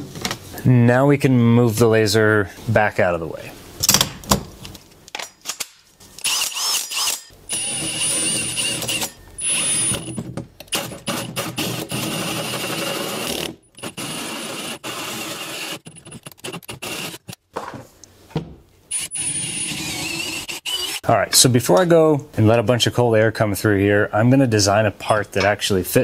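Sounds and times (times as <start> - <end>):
power tool motor whining: 6.2 - 10.2, 18.9 - 21.0.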